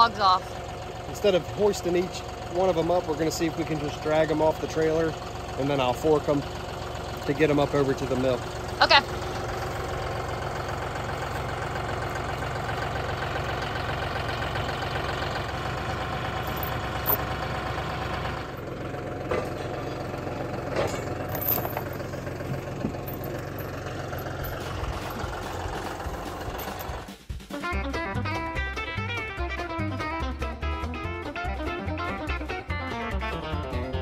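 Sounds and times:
tractor diesel engine idling: 0:00.0 - 0:27.2.

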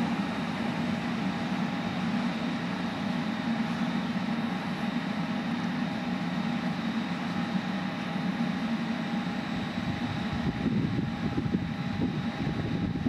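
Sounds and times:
diesel railcar engine drone: 0:00.0 - 0:13.0
wind rumble on microphone: 0:09.7 - 0:13.0.

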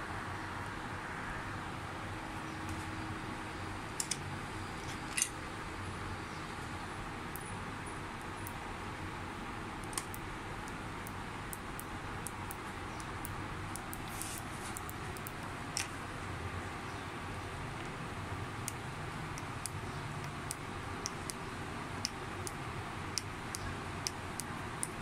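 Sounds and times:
sharp clicks of circuit board handling: 0:04.0 - 0:05.4, 0:09.8 - 0:10.2
room hiss: 0:05.5 - 0:25.0.

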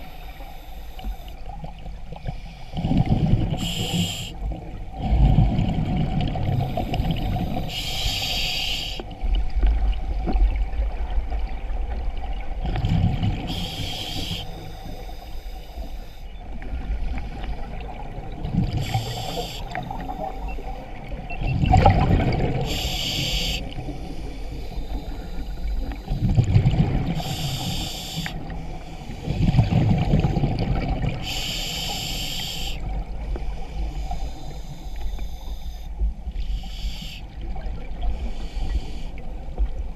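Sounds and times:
regulator hissing inhale: 0:00.0 - 0:01.6, 0:02.2 - 0:02.9, 0:03.5 - 0:04.6, 0:06.5 - 0:09.2, 0:13.5 - 0:16.3, 0:18.8 - 0:20.5, 0:22.6 - 0:26.3, 0:27.2 - 0:29.5, 0:31.2 - 0:37.4, 0:38.0 - 0:39.3
exhaled bubbles rumbling: 0:02.8 - 0:03.8, 0:04.4 - 0:07.7, 0:09.2 - 0:13.6, 0:16.4 - 0:23.0, 0:25.1 - 0:27.2, 0:29.3 - 0:31.2.

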